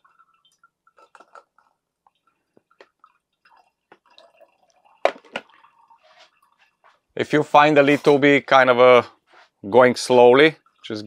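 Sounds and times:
juice dripping into a bottle: 0.0s - 7.1s, 10.3s - 11.0s.

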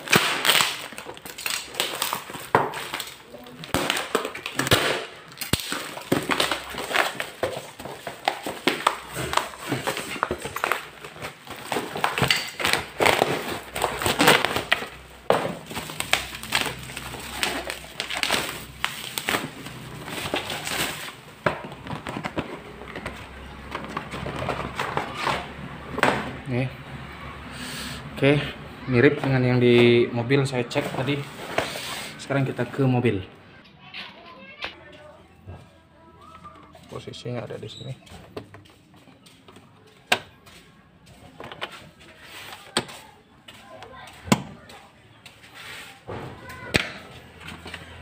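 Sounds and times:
parcel packaging ripping and rustling: 0.0s - 25.6s.

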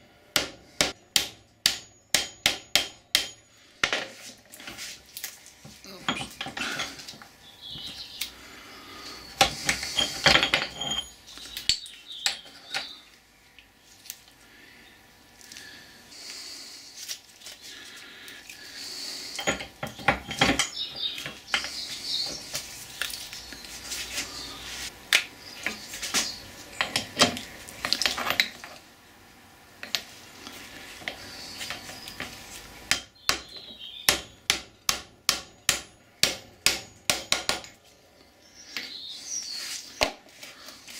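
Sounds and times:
metal clinks and knocks: 9.4s - 12.9s, 19.4s - 21.7s.

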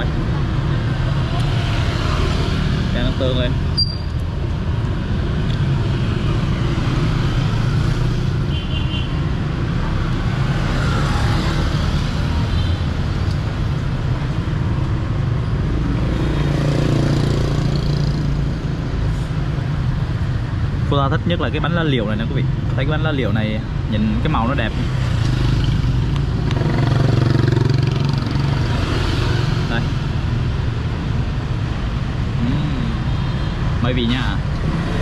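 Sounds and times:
road traffic hum: 0.0s - 35.0s.

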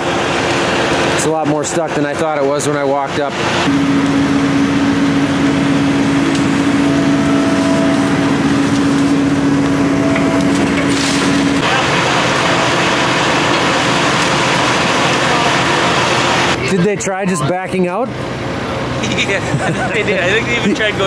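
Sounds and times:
diesel engine droning: 0.0s - 21.0s
bucket scraping through wet soil: 10.5s - 11.6s.

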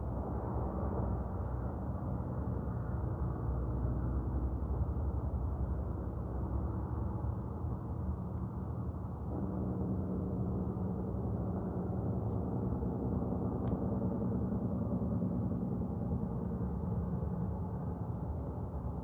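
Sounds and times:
industrial machinery roar: 8.8s - 17.0s.

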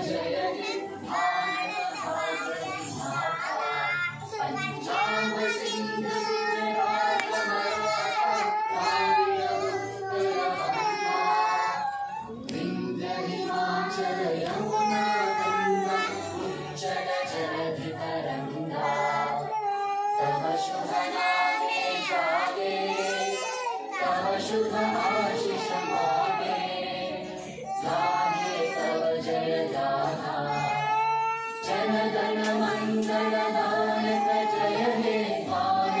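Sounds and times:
children singing in unison: 0.0s - 36.0s.

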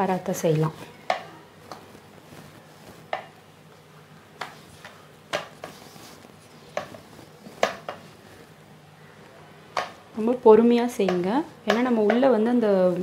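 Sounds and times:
rolling pin clacking on steel plate: 11.0s - 12.4s.

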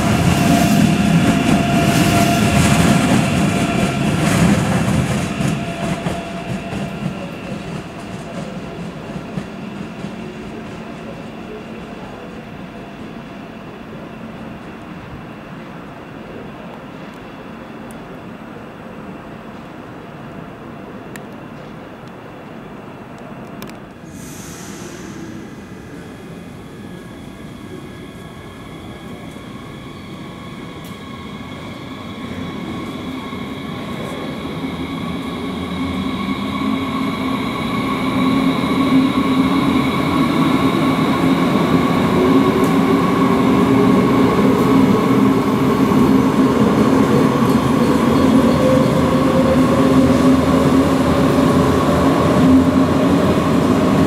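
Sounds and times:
electric train whine: 0.0s - 54.0s.

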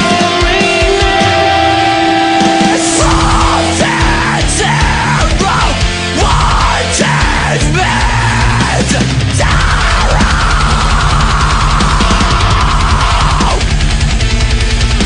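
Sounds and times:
heavy rock music: 0.0s - 15.0s.

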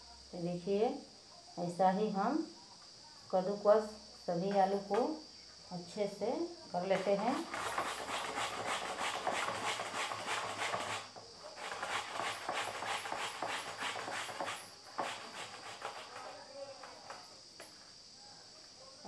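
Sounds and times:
potato grating on metal grater: 7.0s - 16.4s.

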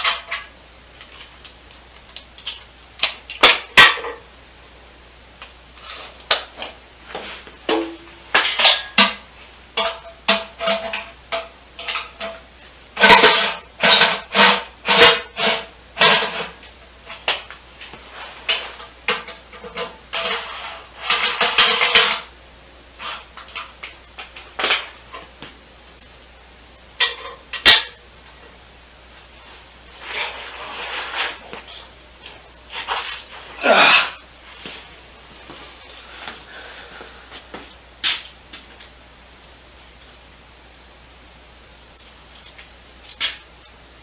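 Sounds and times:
tools clinking on sheet metal: 27.0s - 28.5s.

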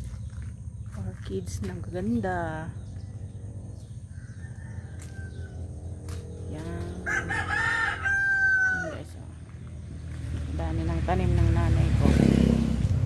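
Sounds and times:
distant rooster crow: 3.9s - 5.9s, 7.0s - 9.1s
rooster crowing: 4.1s - 5.8s, 7.0s - 9.1s.

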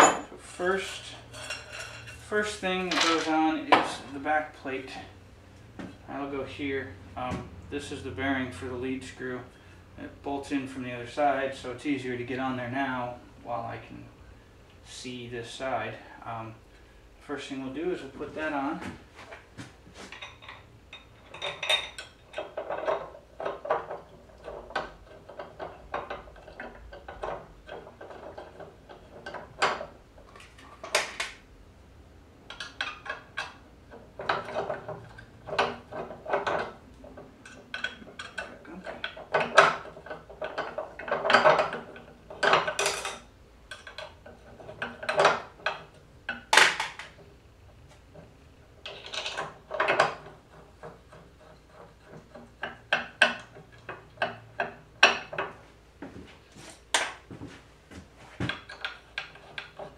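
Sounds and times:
metal plates and hardware clinking: 0.0s - 4.2s, 20.0s - 31.0s, 34.2s - 47.2s.

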